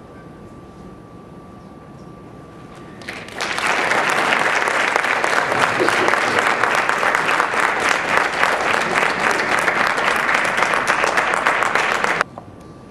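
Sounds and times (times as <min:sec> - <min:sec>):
audience applauding: 0:03.0 - 0:12.2.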